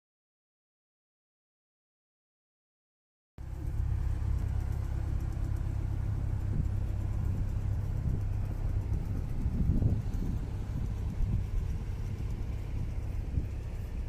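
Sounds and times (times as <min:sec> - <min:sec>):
large vehicle engine idling: 0:03.4 - 0:14.0.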